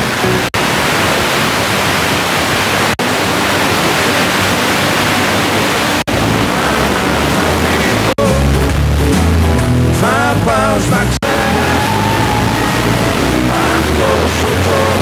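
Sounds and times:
radio static hiss: 0.0s - 9.0s.

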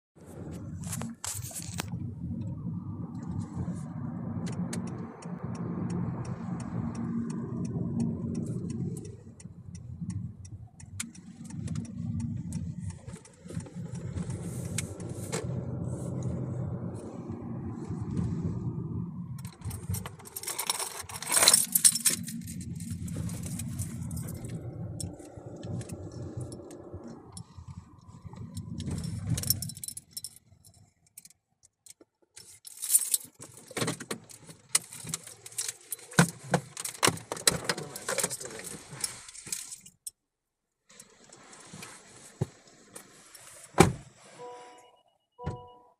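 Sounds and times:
car engine and road rumble: 0.2s - 45.9s
keys jingling: 19.8s - 24.6s, 32.4s - 33.8s.

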